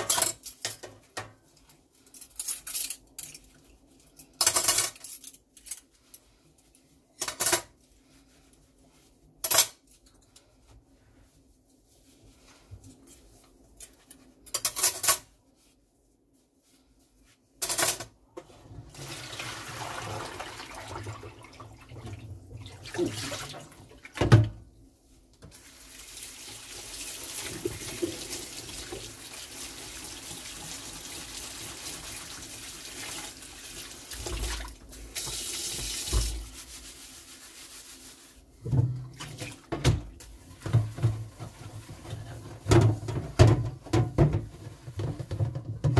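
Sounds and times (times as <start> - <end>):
clatter of dishes: 14.5 - 15.3
tap water running into sink: 26.0 - 36.4.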